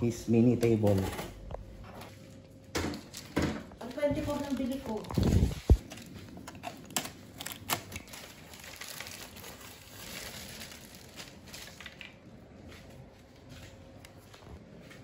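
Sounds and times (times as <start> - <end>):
cardboard and plastic crinkling: 2.9 - 13.9.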